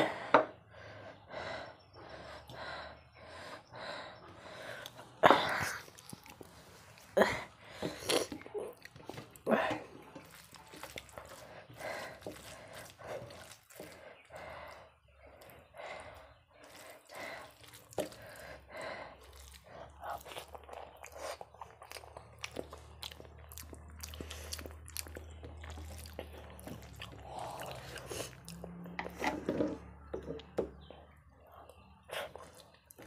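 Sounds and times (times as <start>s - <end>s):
chewing: 4.2s - 33.0s
fingers squishing rice: 7.8s - 29.4s.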